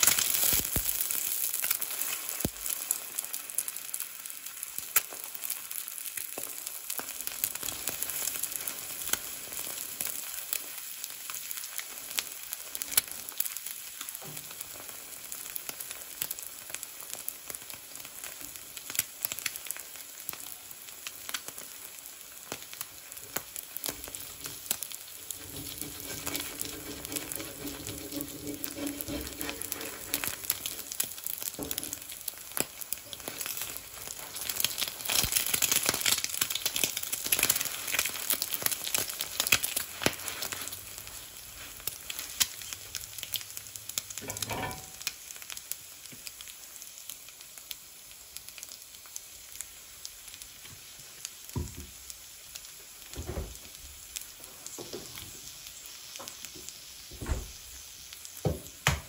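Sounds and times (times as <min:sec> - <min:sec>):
food sizzling in a skillet: 0:00.0 - 0:59.0
oil pops and crackles: 0:00.0 - 0:59.0.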